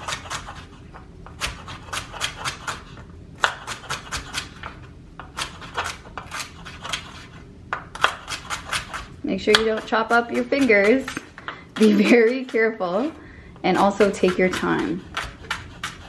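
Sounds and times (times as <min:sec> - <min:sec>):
knife chopping on wooden board: 0:03.4 - 0:12.6, 0:13.8 - 0:16.0.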